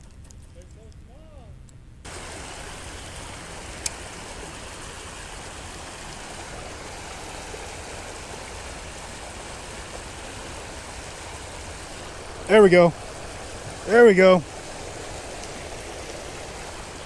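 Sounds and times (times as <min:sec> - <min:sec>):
river water rushing over edge: 0:02.1 - 0:17.0.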